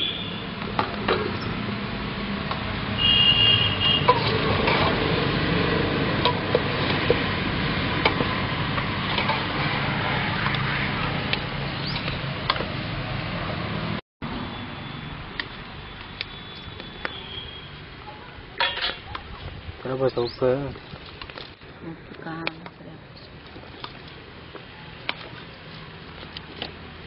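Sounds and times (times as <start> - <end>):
gravy boiling and bubbling: 23.2 - 27.0.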